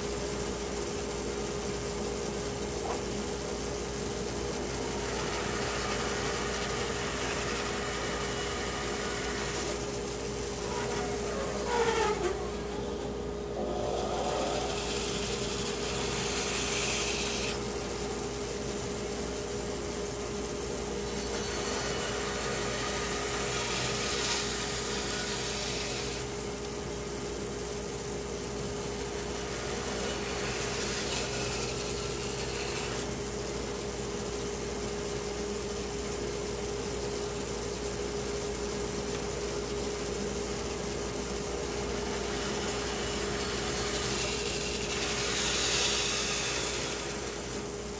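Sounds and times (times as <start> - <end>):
machine hum: 0.0 - 47.9
power saw cutting wood: 4.6 - 17.7, 21.1 - 26.3, 29.0 - 33.3, 41.8 - 47.9.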